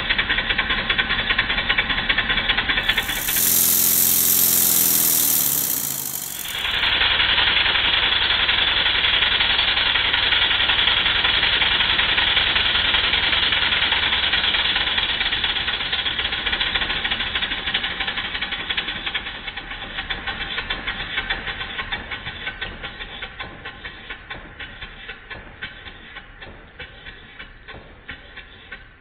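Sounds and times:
valve gear rattle: 0:02.8 - 0:07.0
model steam engine exhaust beat: 0:02.8 - 0:07.1.

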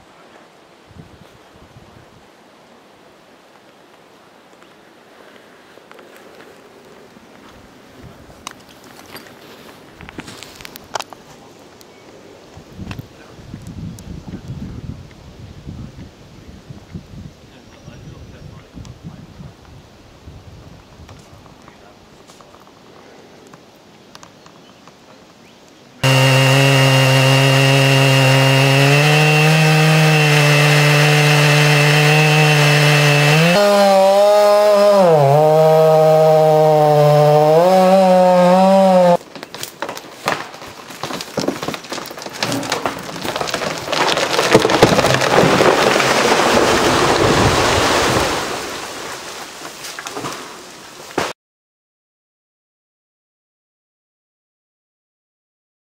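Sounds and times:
chainsaw cutting wood: 0:26.0 - 0:48.3
wood cracking and crashing: 0:26.0 - 0:50.5.

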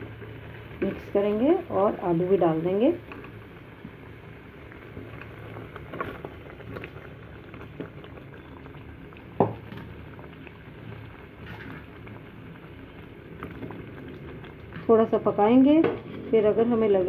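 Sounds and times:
gravy bubbling: 0:00.0 - 0:17.0
spatula stirring with clicks: 0:03.0 - 0:04.0.

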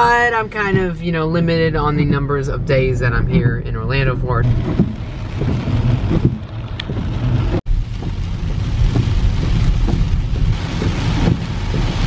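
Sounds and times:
car rumbling on wet road: 0:00.0 - 0:12.0
rain and spray hissing: 0:04.4 - 0:12.0.

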